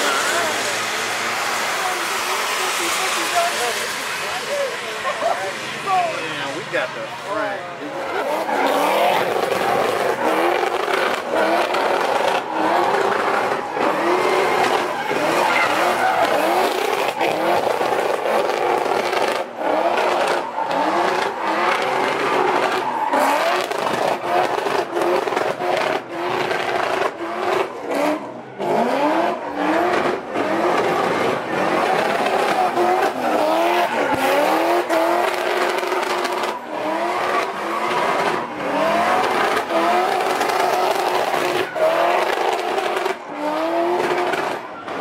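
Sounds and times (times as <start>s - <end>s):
car engine revving hard: 0.0s - 45.0s
tyres squealing: 7.9s - 17.9s.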